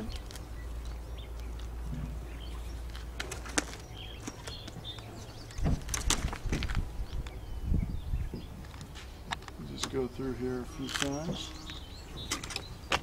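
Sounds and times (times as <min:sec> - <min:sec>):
rope clicks and rustles: 0:00.0 - 0:02.2, 0:02.8 - 0:07.4, 0:10.8 - 0:13.0
bird chirps: 0:00.0 - 0:06.1, 0:07.0 - 0:13.0
wind rumbling on microphone: 0:03.8 - 0:09.8.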